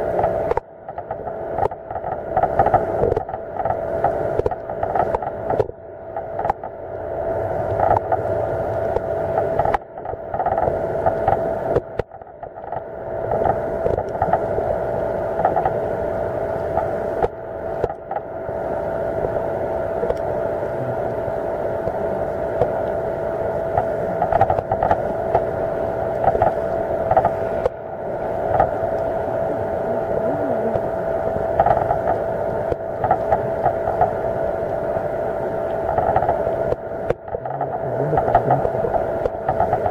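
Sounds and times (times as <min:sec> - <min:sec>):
boat engine drone underwater: 0:00.0 - 0:39.9
faint clicks: 0:20.0 - 0:20.3.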